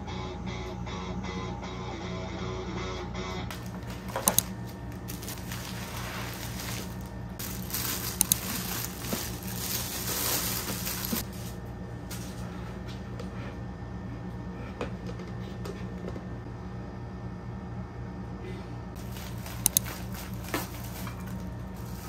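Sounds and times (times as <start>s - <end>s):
steady low hum: 0.0s - 22.0s
plastic rustling: 3.5s - 12.3s, 19.0s - 22.0s.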